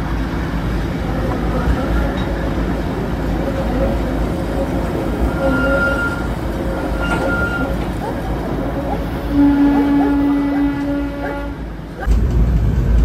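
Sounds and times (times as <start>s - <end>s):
train coach rumbling on rails: 0.0s - 13.0s
train wheels squealing: 3.2s - 11.4s.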